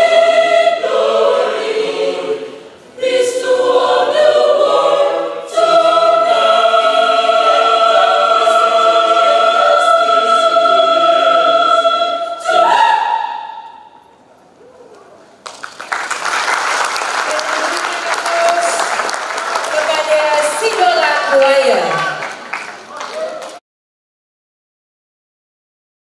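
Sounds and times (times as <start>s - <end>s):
mixed choir singing: 0.0s - 14.1s.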